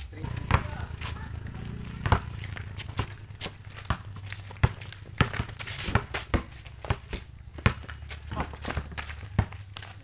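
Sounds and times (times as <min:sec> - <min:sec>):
basketball bouncing on concrete: 0:00.2 - 0:10.0
flip-flops slapping on concrete: 0:02.0 - 0:10.0.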